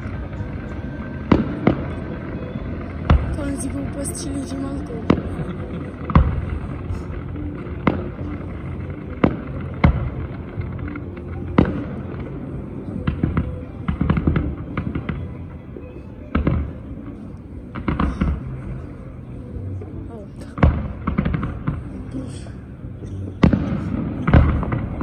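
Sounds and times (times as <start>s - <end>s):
fireworks crackling pops: 0.0s - 15.4s, 20.4s - 22.3s, 23.0s - 25.0s
fireworks bangs: 0.0s - 15.5s, 20.6s - 22.0s, 23.4s - 25.0s.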